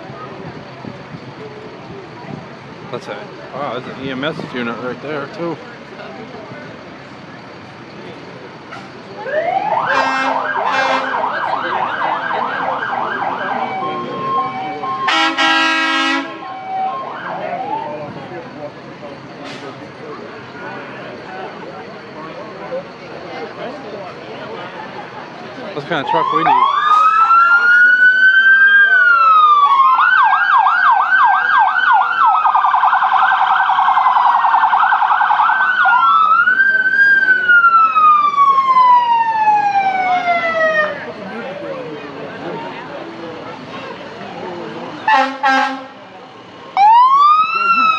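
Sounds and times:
siren yelping: 9.2s - 15.5s, 16.3s - 18.0s, 26.0s - 41.1s, 46.8s - 47.9s
vehicle horn blasts: 9.9s - 11.2s, 15.1s - 16.4s, 45.1s - 46.0s.

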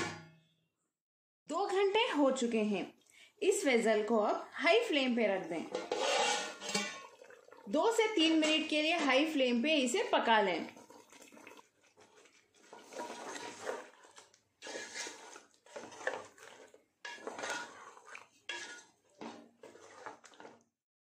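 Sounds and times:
spatula scraping metal pot: 4.2s - 20.7s.

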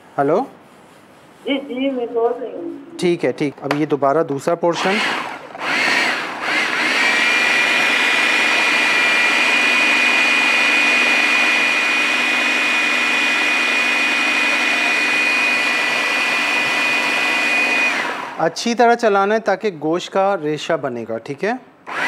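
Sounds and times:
electric food chopper running: 4.8s - 18.5s.

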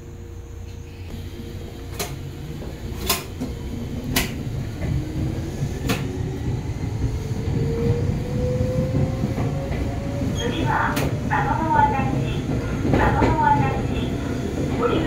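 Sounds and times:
train rumble: 0.0s - 15.0s
wheels clacking on track: 8.8s - 15.0s.

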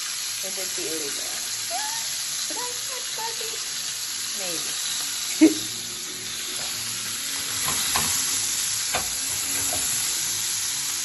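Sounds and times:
fish sizzling in hot oil: 0.0s - 11.0s
knocks and scrapes in pan: 8.9s - 10.0s.

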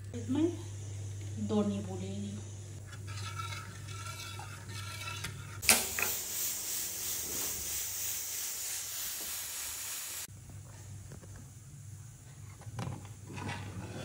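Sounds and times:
pressure cooker pop: 5.6s - 6.2s
pressure cooker steam hiss: 5.6s - 10.3s.

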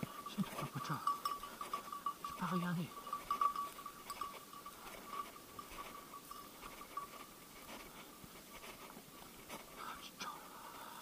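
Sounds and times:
thin steady high tone: 0.0s - 8.1s
footsteps through dry brush: 0.6s - 10.0s.

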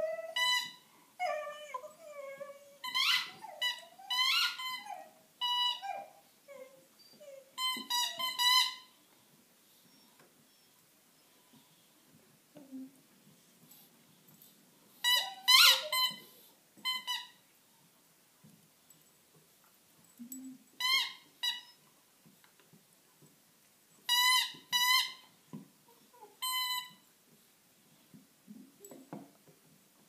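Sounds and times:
squeaky dog toy squeaking: 0.0s - 9.0s, 15.0s - 17.4s, 20.8s - 21.8s, 24.1s - 27.0s.

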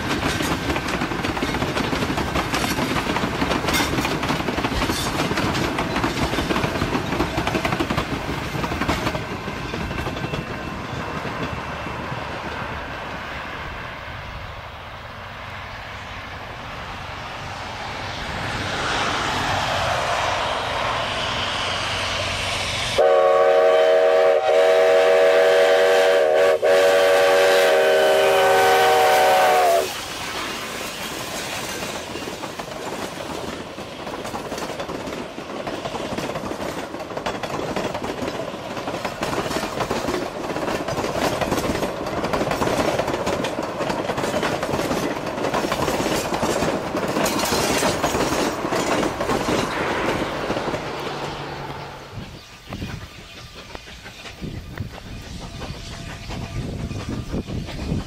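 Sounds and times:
wheels clacking on track: 0.0s - 14.5s, 27.7s - 58.0s
train rumbling past: 0.0s - 58.0s
train horn blast: 22.9s - 30.0s.

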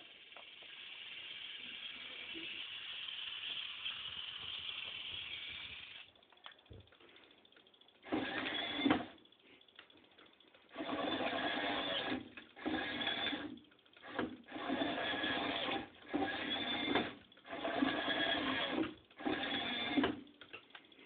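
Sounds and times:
small electric motor whirring: 0.1s - 6.1s, 8.1s - 9.1s, 10.7s - 20.2s.

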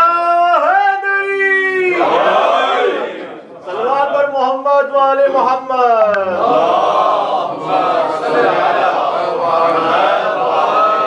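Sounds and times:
congregation chanting in unison: 1.8s - 4.6s, 6.2s - 11.0s.

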